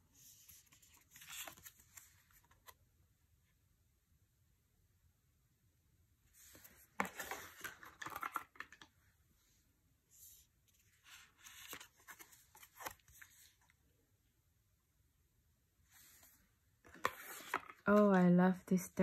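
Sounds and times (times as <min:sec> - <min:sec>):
cards sliding and flicking: 0:16.9 - 0:17.8.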